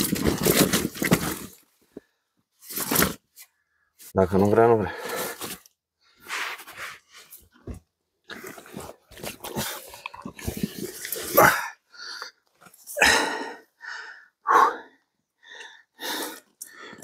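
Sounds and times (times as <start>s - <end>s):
man breathing hard: 13.0s - 17.0s.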